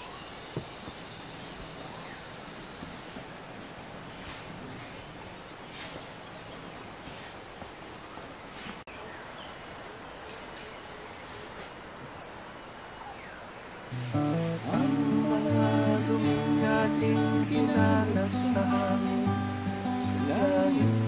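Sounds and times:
outdoor ambience hiss: 0:00.0 - 0:21.0
high-pitched insect drone: 0:12.4 - 0:21.0.

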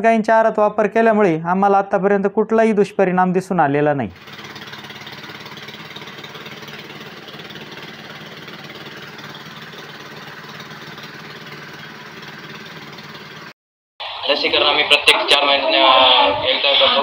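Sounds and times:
chaff cutter machine hum: 0:04.2 - 0:13.5.

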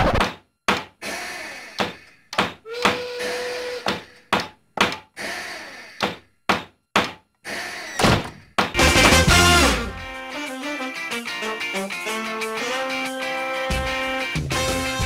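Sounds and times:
hammering wooden knocks: 0:01.8 - 0:03.0, 0:03.8 - 0:05.1, 0:06.0 - 0:07.3.

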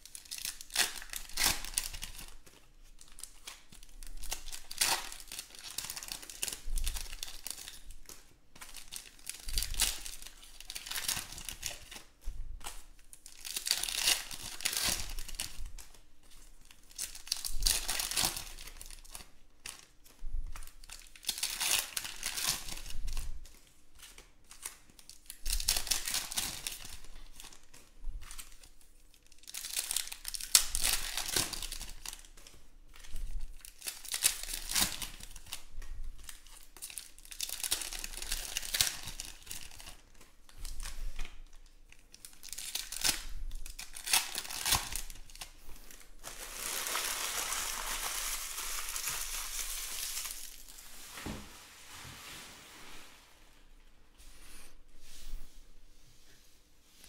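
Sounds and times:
foil packs tearing and crinkling: 0:00.0 - 0:07.9, 0:08.6 - 0:12.0, 0:13.2 - 0:15.9, 0:16.9 - 0:19.8, 0:20.8 - 0:23.2, 0:24.5 - 0:27.6, 0:29.2 - 0:32.3, 0:33.6 - 0:35.6, 0:36.3 - 0:40.0, 0:42.1 - 0:50.8.

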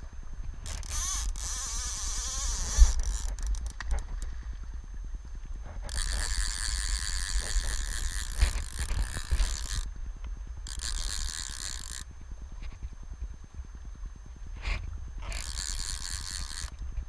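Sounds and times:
low rumble of river and wind: 0:00.0 - 0:17.0
fly reel ratchet buzzing: 0:00.6 - 0:04.3, 0:05.8 - 0:09.9, 0:10.6 - 0:12.2, 0:14.6 - 0:16.9.

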